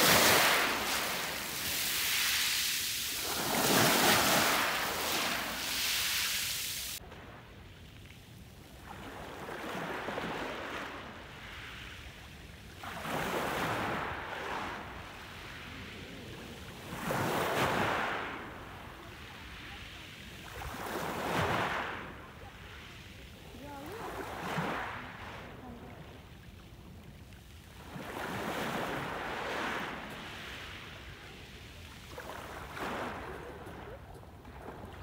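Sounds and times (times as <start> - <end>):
sea waves washing onto pebbles: 0.0 - 7.0.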